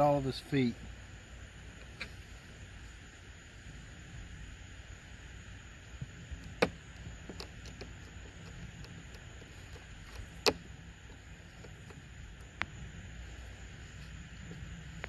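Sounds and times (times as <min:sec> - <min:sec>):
low background hum: 0:00.0 - 0:15.0
faint ticks: 0:06.0 - 0:15.0.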